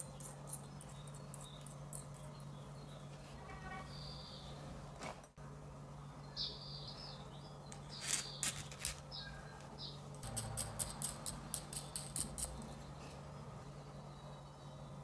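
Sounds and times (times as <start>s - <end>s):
small metal parts clicking: 0.0s - 2.3s, 10.2s - 12.7s
nut clicking along threaded rod: 10.2s - 12.6s.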